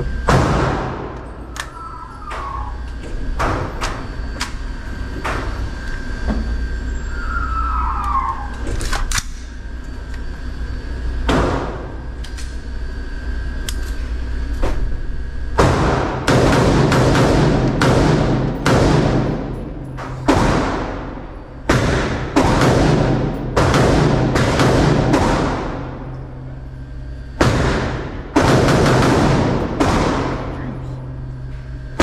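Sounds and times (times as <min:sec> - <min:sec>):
gunshots echoing indoors: 0:00.2 - 0:04.4, 0:11.2 - 0:12.4, 0:15.4 - 0:32.0.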